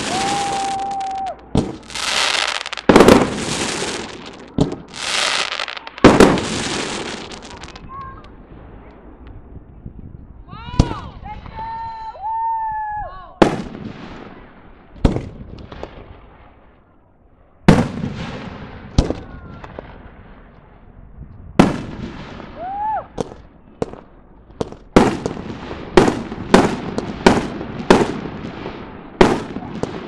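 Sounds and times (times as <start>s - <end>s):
firework shells bursting: 0.0s - 8.3s.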